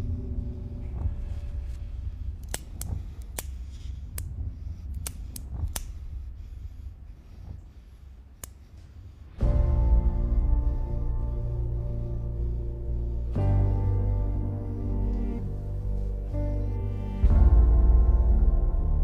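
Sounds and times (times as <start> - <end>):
low steady rumble: 0.0 - 19.0
cigarette lighter clicks: 2.4 - 4.3, 4.9 - 6.0, 8.4 - 8.6.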